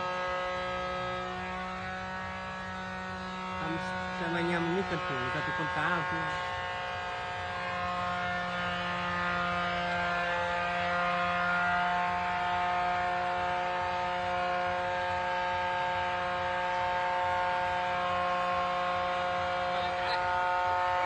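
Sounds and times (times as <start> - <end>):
speaker buzzing hum: 0.0 - 21.0.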